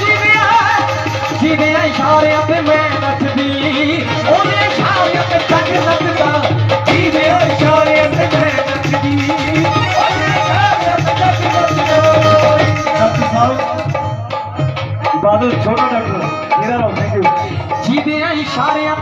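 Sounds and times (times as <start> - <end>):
drum beating a rhythm: 0.0 - 19.0
held melody line: 0.0 - 19.0.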